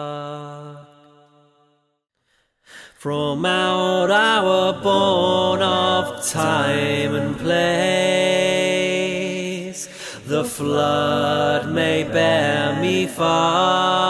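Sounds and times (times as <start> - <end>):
male voices singing in harmony: 3.0 - 14.0.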